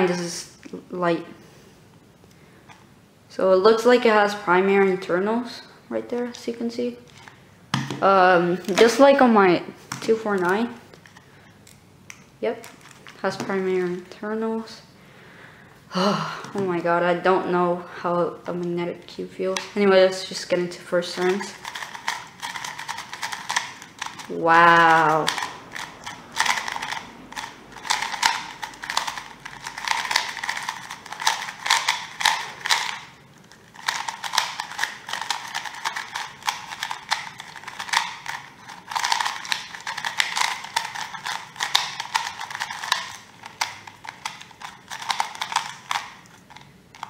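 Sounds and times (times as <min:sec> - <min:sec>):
puzzle cube clicking: 0:21.3 - 0:33.1, 0:33.7 - 0:47.0.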